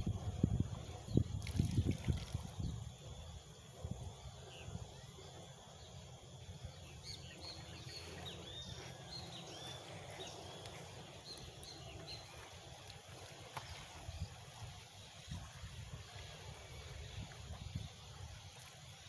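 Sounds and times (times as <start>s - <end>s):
small birds chirping: 4.2s - 19.0s.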